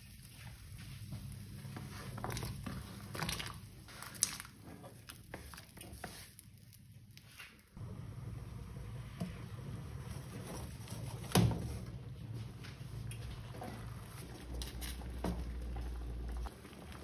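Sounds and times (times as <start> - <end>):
water boiling in a pot: 0.0 - 7.1, 7.8 - 17.0
potatoes splashing into water: 2.2 - 4.6.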